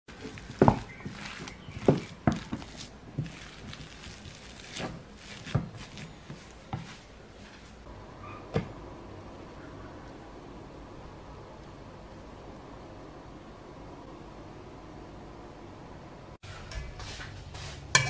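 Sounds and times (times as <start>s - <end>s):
utensil mashing salad in bowl: 0.1s - 6.9s.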